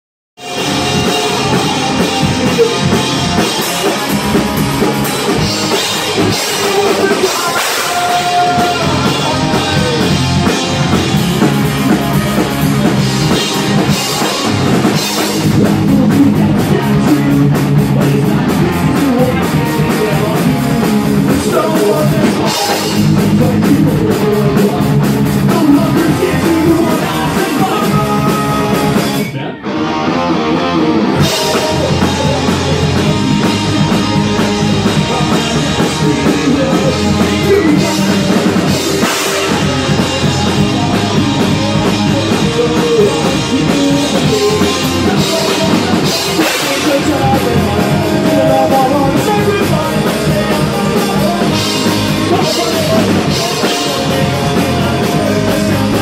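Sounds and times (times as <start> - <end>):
drum kit: 0.4 - 29.4, 30.6 - 56.0
bass guitar: 0.4 - 56.0
electric guitar: 0.4 - 56.0
person singing lead vocal: 0.4 - 56.0.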